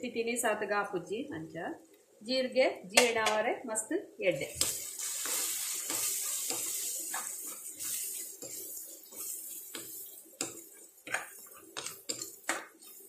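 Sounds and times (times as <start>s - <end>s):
food sizzling in oil: 4.4s - 13.0s
spatula scraping pan: 4.6s - 13.0s.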